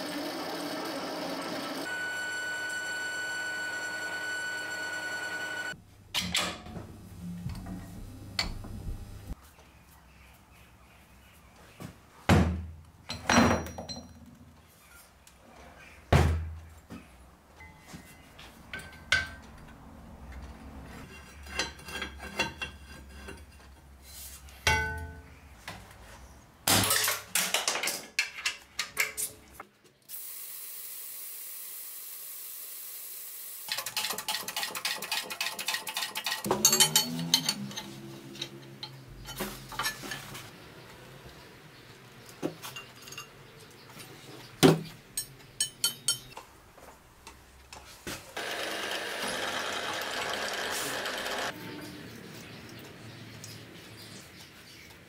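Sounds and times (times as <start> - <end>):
steel parts clinking and knocking: 35.9 - 40.4, 42.6 - 43.4, 45.2 - 46.4.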